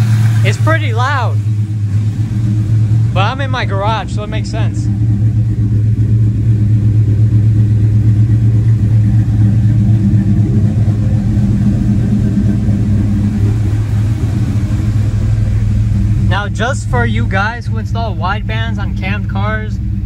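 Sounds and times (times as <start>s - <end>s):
car engine idling loudly: 0.0s - 20.0s.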